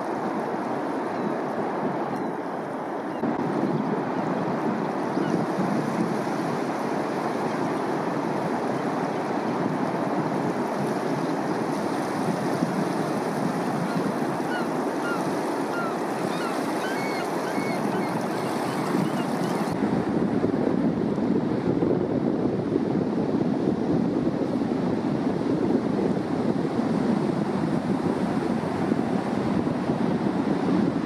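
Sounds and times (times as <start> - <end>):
wind: 0.0 - 31.0
surf: 3.2 - 20.9.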